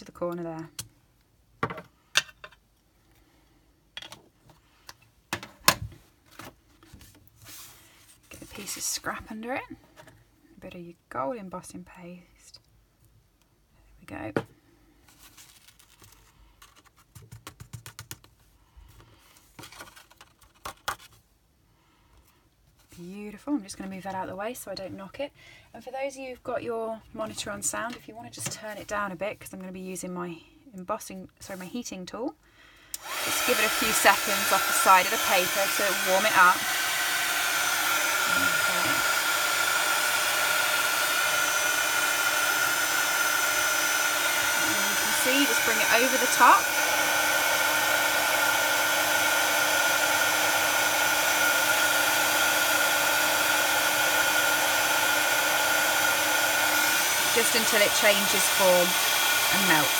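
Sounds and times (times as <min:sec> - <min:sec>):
heat tool blowing air with whine: 0:33.0 - 0:59.9.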